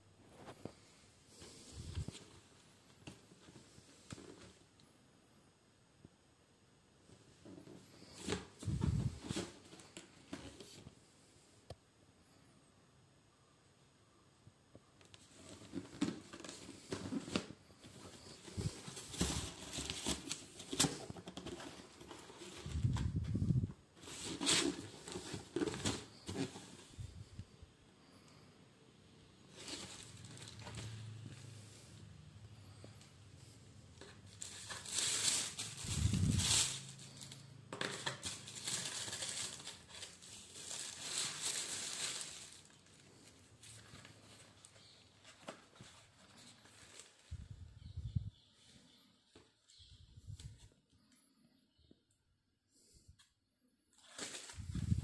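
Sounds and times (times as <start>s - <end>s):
tissue paper rustling and crinkling: 8.0s - 10.8s, 15.2s - 27.1s, 29.5s - 31.2s, 34.0s - 47.4s, 54.0s - 55.0s.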